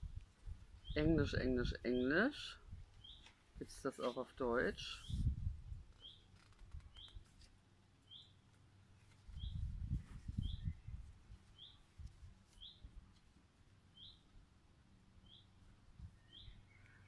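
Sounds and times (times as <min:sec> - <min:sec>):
bird high chirp: 0:03.0 - 0:03.3, 0:06.0 - 0:06.3, 0:06.9 - 0:07.3, 0:08.0 - 0:08.4, 0:09.3 - 0:11.9, 0:12.5 - 0:12.9, 0:13.9 - 0:14.2, 0:15.2 - 0:17.0.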